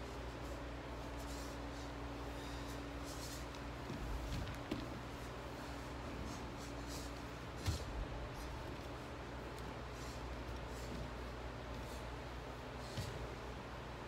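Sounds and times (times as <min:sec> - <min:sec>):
low room hum: 0:00.0 - 0:14.0
feet sliding on wooden floor: 0:00.4 - 0:13.8.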